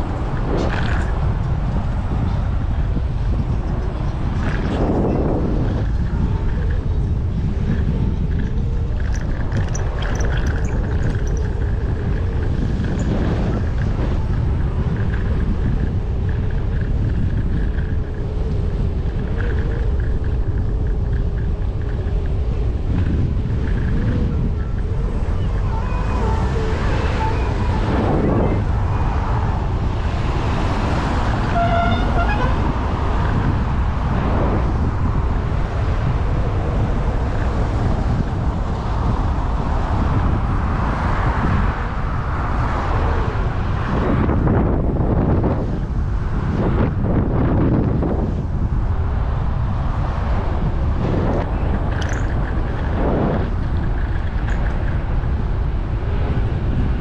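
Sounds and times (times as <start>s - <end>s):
road noise: 0.0s - 57.0s
traffic passing: 0.0s - 57.0s
wind buffeting microphone: 0.0s - 57.0s.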